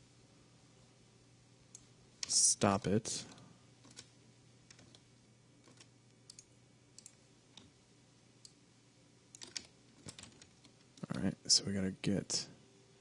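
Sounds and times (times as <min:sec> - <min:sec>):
low steady hum: 0:00.0 - 0:13.0
mouse and keyboard clicks: 0:09.3 - 0:11.2.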